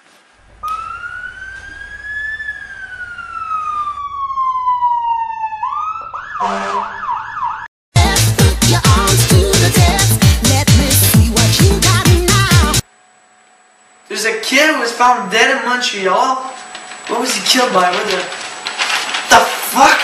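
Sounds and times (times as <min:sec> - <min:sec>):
siren wailing and yelping: 0:00.6 - 0:07.7
electronic dance music: 0:08.0 - 0:12.8.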